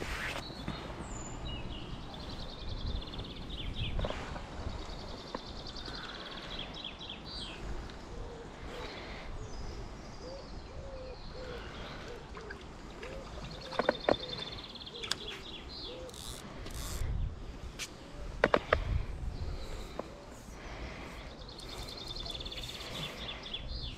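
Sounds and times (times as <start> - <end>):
wind rumble on microphone: 1.0 - 11.3, 16.7 - 20.1
birds trilling: 5.0 - 17.0, 18.4 - 23.9.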